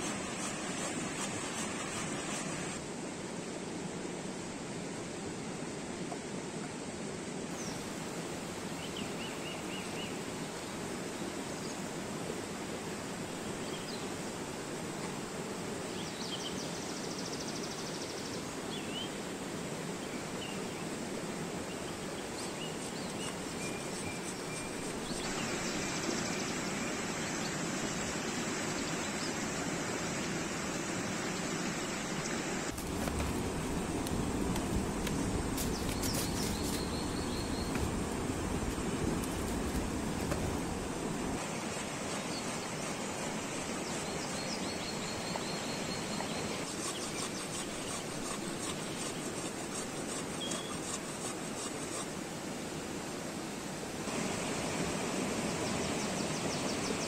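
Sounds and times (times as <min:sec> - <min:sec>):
birds chirping and trilling: 0:35.1 - 0:40.8.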